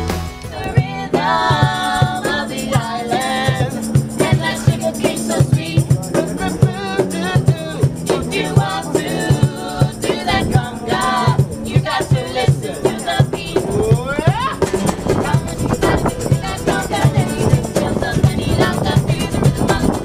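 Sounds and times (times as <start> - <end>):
acoustic guitar: 0.0 - 20.0
low thumping beat: 0.0 - 20.0
women singing together: 0.4 - 20.0.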